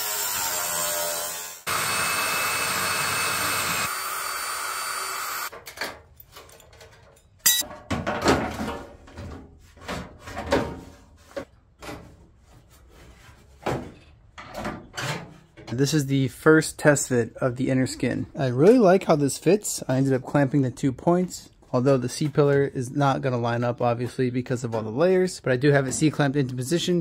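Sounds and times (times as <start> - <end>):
power tool on sheet metal: 0.0 - 5.5
metal knocks and clanks: 5.5 - 11.0.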